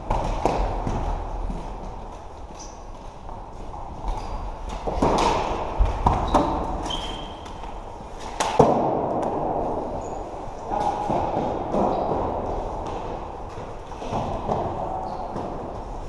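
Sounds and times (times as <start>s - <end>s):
players shuffling on court: 0.0s - 8.4s
shoe squeak: 2.6s - 2.8s, 4.1s - 4.6s, 6.2s - 7.6s, 11.9s - 12.1s.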